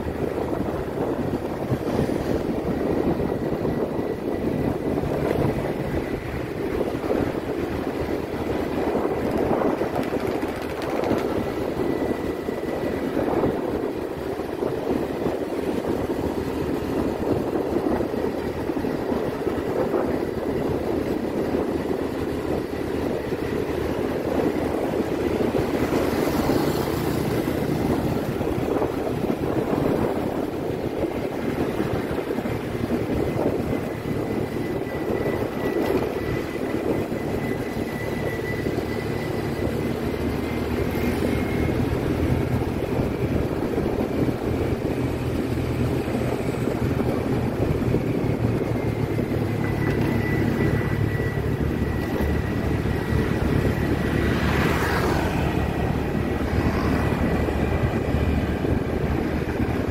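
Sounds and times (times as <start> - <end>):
motorbike engine drone: 0.0 - 59.9
wind rushing over microphone: 0.0 - 59.9.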